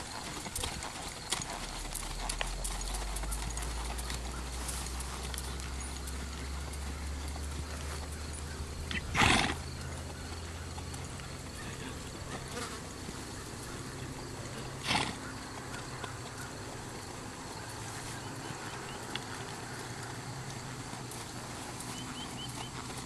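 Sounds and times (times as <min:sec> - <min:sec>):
hoofbeats on dirt: 0:00.0 - 0:23.0
low outdoor rumble: 0:00.0 - 0:23.0.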